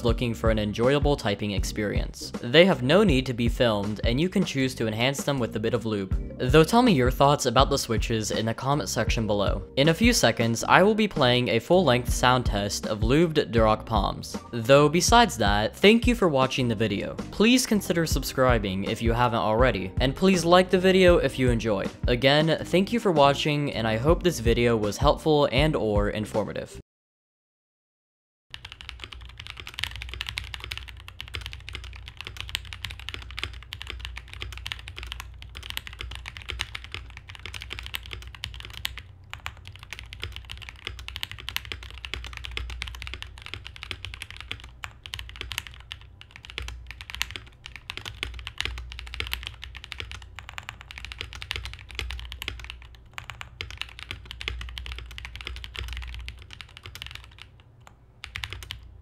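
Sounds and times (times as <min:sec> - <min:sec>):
mechanical keyboard typing: 0:28.5 - 0:58.9.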